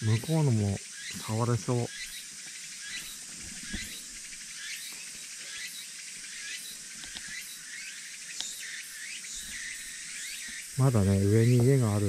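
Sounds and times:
cicadas calling: 0.0s - 12.0s.

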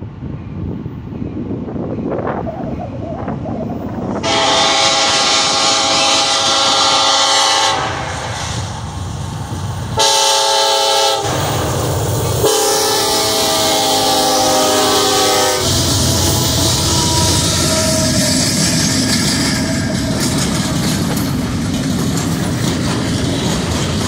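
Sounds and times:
locomotive engines rumbling: 0.0s - 24.0s
train wheels on rails: 0.0s - 24.0s
locomotive air horn blasts: 4.2s - 8.6s, 10.0s - 11.6s, 12.4s - 18.9s.

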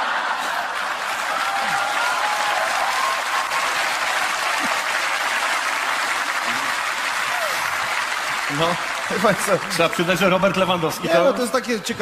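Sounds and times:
audience applauding: 0.0s - 11.0s.

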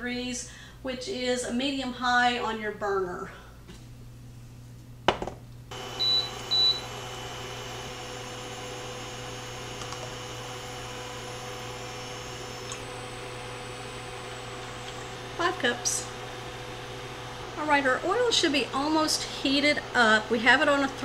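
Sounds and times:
cooling fan humming: 3.4s - 21.0s
control panel beeps: 6.0s - 6.9s.

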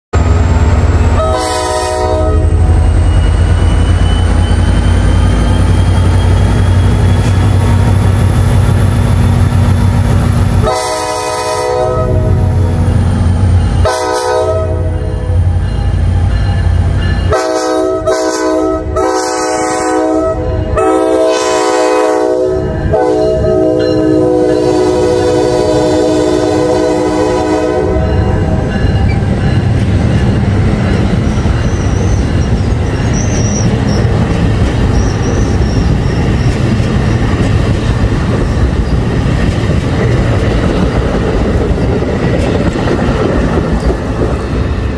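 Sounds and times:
train wheels rumbling on rails: 0.1s - 44.9s
train horn blasts: 1.1s - 3.0s, 10.5s - 12.7s, 13.7s - 15.5s, 17.2s - 29.5s.

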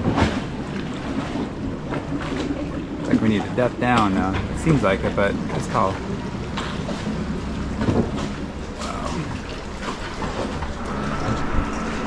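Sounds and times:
wind on microphone: 10.4s - 12.0s.

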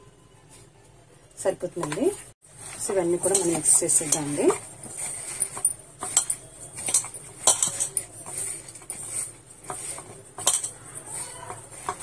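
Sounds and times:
leaves mixed by hand rustling: 2.5s - 12.0s.

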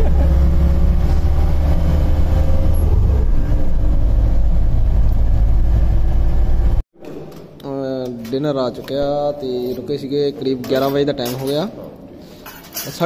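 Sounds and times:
vehicle engine and road rumble: 0.0s - 6.8s.

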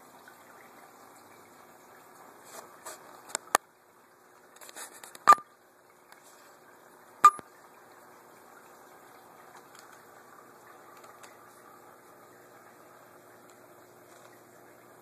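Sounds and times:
aquarium filter humming: 0.0s - 15.0s
sharp glassy clicks: 7.2s - 7.4s.

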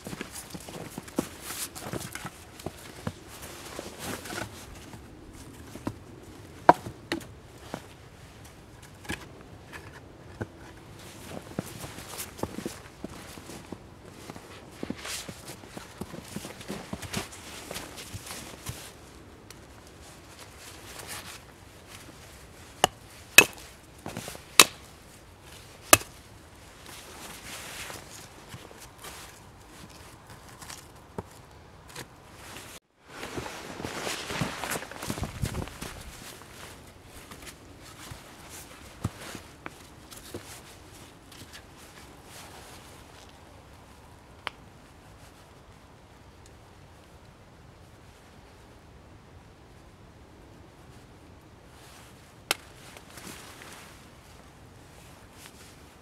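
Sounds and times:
footsteps in snow: 0.0s - 6.2s, 25.1s - 43.3s
hatchet striking wooden stake: 22.8s - 23.6s, 24.6s - 24.8s, 25.9s - 26.1s.

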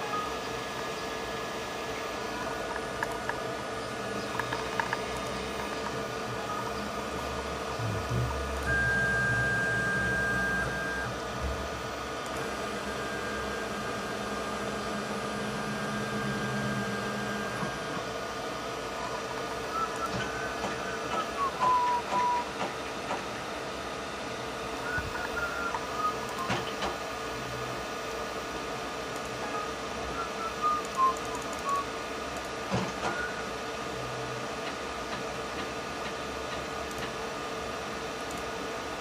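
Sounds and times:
faint high whine: 0.0s - 22.5s, 24.7s - 28.5s
machine hum: 0.0s - 39.0s.

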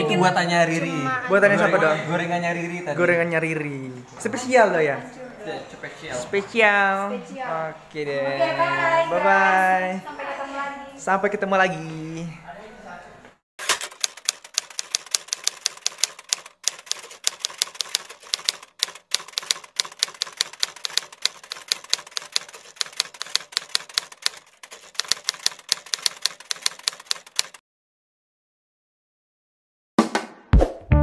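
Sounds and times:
typewriter key clicks: 13.6s - 27.6s.

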